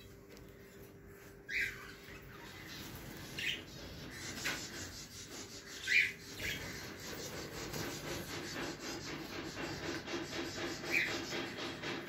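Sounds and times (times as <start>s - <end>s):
budgerigars chirping: 1.5s - 8.5s.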